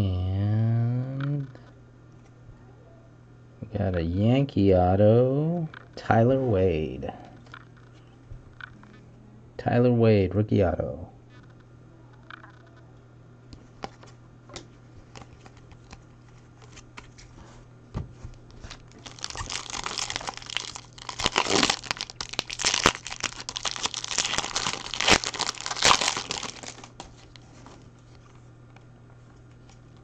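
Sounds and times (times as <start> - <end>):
foil wrapper tearing and crinkling: 18.8 - 27.4.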